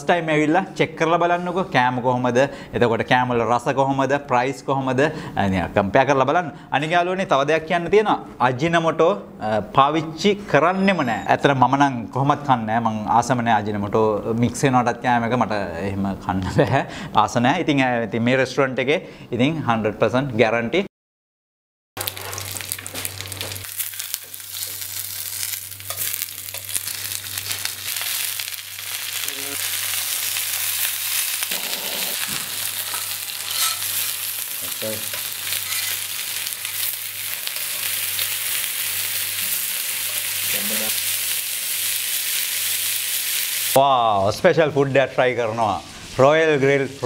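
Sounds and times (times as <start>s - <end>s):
meat sizzling in a pan: 22.0s - 43.8s.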